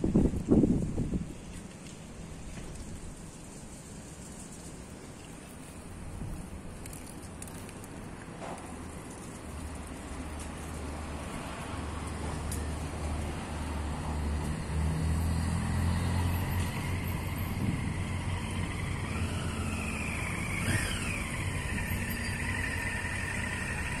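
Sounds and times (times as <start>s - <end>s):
vehicle engine rumbling past: 9.6s - 24.0s.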